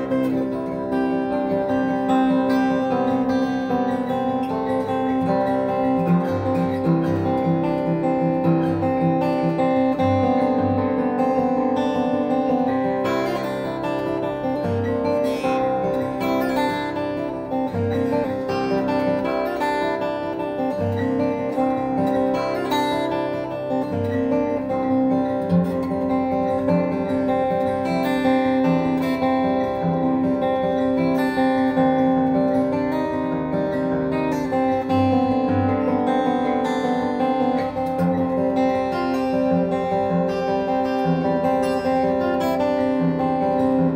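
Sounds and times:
acoustic guitar plucked notes: 0:00.0 - 0:43.9.

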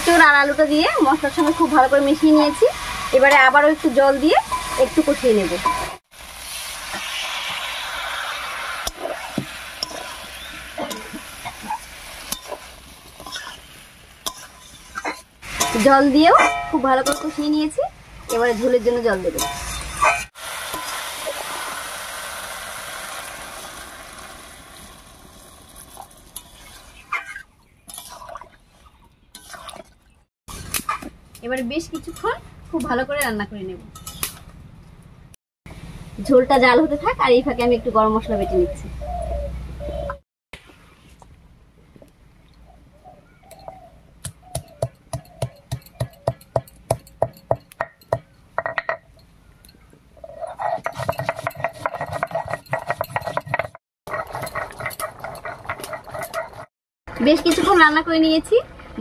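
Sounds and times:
water hissing in a hot wok: 0:00.0 - 0:16.2, 0:20.3 - 0:27.1
spatula scraping a wok: 0:05.6 - 0:17.7, 0:26.3 - 0:28.4, 0:29.3 - 0:29.9, 0:50.2 - 0:56.7
stone pestle pounding on stone: 0:44.5 - 0:49.0.

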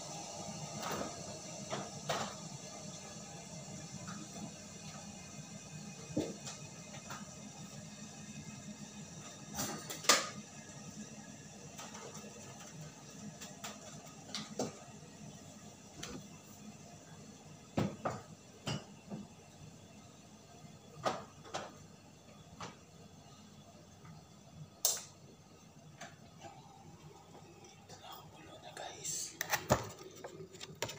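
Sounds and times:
knocks and thuds in kitchen: 0:17.7 - 0:19.3, 0:21.0 - 0:21.7.

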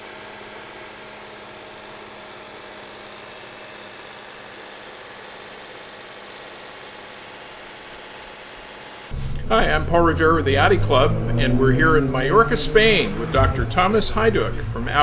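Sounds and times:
car engine idling: 0:09.1 - 0:15.0.

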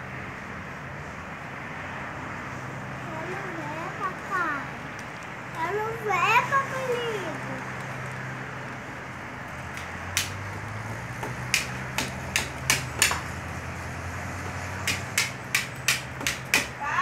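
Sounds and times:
sharp hammer-like knocks: 0:11.2 - 0:13.4, 0:14.4 - 0:16.8.

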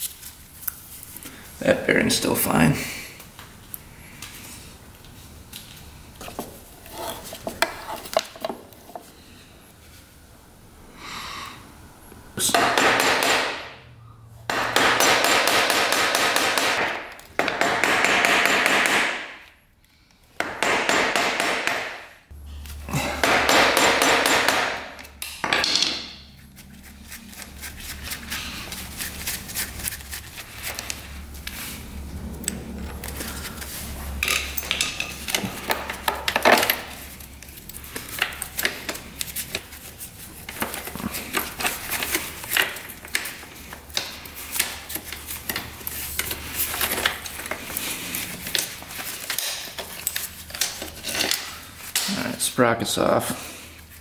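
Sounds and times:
impact wrench hammering: 0:12.4 - 0:13.8, 0:14.5 - 0:19.5, 0:20.4 - 0:22.1, 0:23.1 - 0:26.2.

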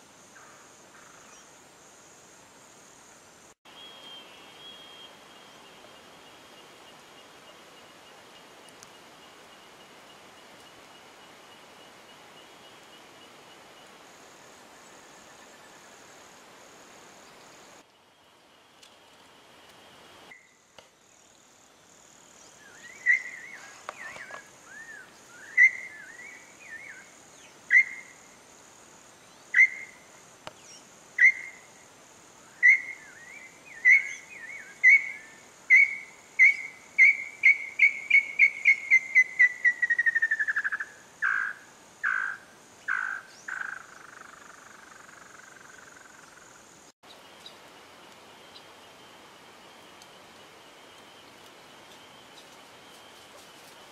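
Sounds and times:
bird singing whistled notes: 0:03.7 - 0:06.6, 0:22.4 - 0:28.3, 0:29.3 - 0:30.0, 0:30.6 - 0:31.7, 0:32.5 - 0:42.3.

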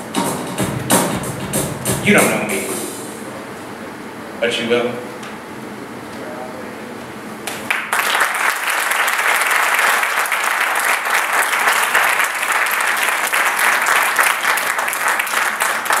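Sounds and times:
audience applauding: 0:07.5 - 0:16.0.

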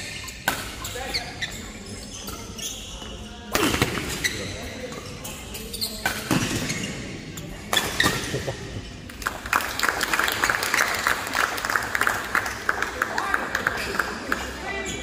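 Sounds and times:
shoes squeaking on court: 0:00.0 - 0:09.1.

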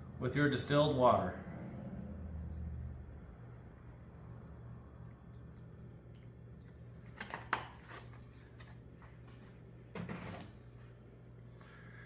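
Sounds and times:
steady low hum: 0:00.0 - 0:12.0
containers knocking and clicking: 0:05.3 - 0:08.0.

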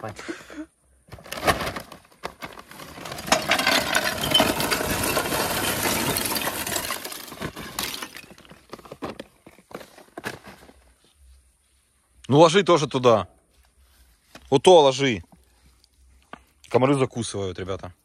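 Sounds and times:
charcoal clattering and crunching: 0:01.1 - 0:10.8.

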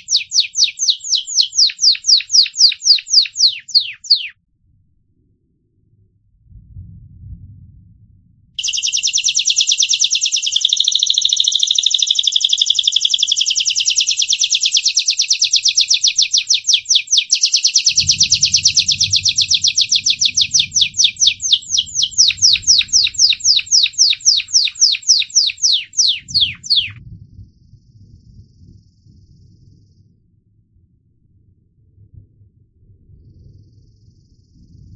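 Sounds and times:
canary singing trills: 0:00.0 - 0:04.4, 0:08.6 - 0:27.0.

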